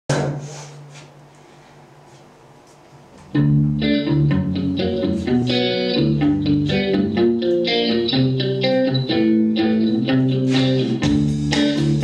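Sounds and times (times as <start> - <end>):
electric guitar chord ringing: 3.3 - 12.0.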